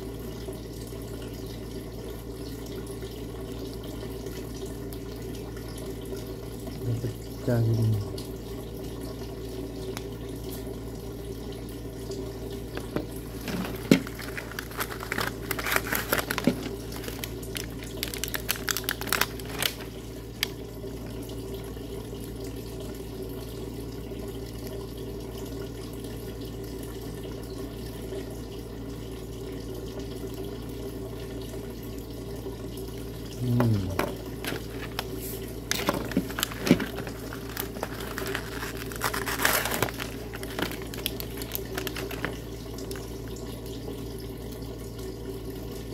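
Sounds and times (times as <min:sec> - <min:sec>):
plastic packaging crinkling: 0:12.8 - 0:20.6, 0:34.0 - 0:43.1.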